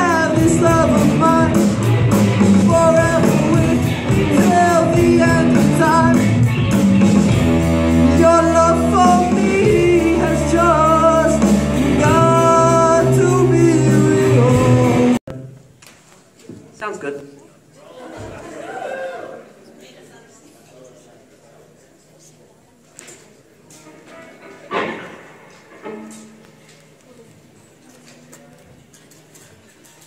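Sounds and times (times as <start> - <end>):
person singing: 0.0 - 6.5, 7.8 - 15.2
bass guitar: 0.0 - 15.2
electric guitars: 0.0 - 15.2
drums: 0.0 - 15.4.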